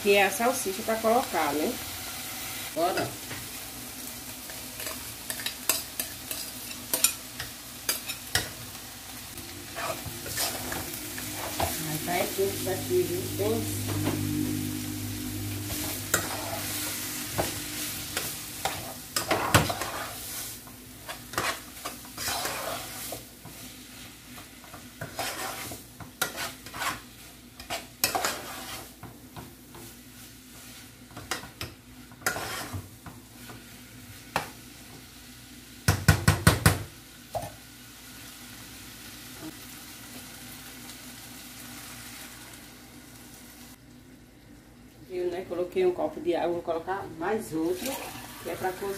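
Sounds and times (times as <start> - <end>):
meat sizzling: 0.0 - 43.8, 47.5 - 48.9
spoon scraping a saucepan: 9.7 - 12.0, 15.6 - 20.3, 21.0 - 23.2, 25.0 - 29.0, 32.2 - 32.8
sharp knocks on a pan: 35.9 - 36.9.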